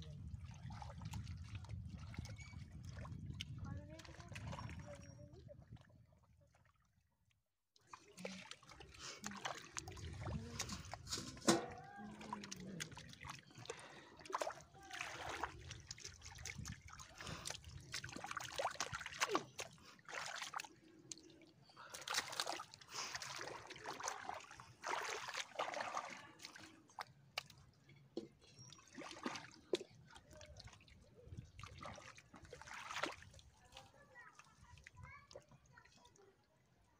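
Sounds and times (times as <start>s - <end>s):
splashing through wet mud: 7.8s - 21.3s, 21.9s - 27.6s, 28.9s - 34.4s.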